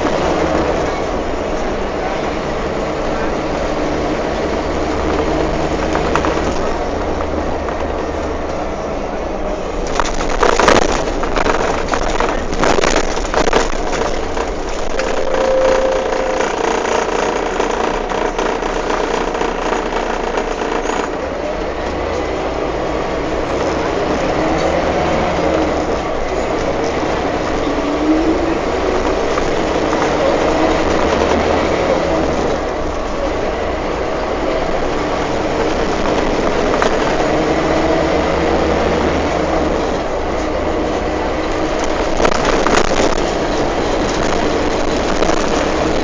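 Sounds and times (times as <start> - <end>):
bus body and windows rattling: 0.0 - 46.0
bus engine and road noise: 0.0 - 46.0
loud clattering: 9.7 - 21.3, 25.6 - 46.0.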